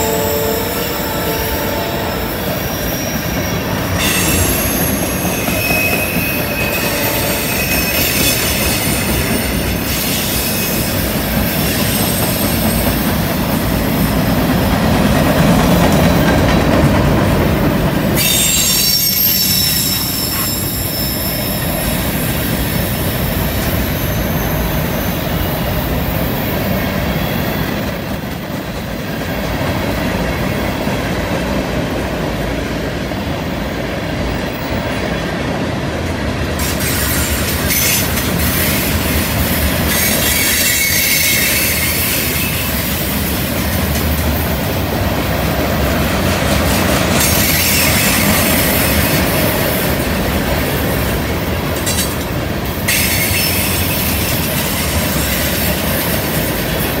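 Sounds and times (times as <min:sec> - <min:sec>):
train wheels rumbling on rail: 0:00.0 - 0:57.0
wheel flanges squealing: 0:02.3 - 0:13.3, 0:18.2 - 0:27.8.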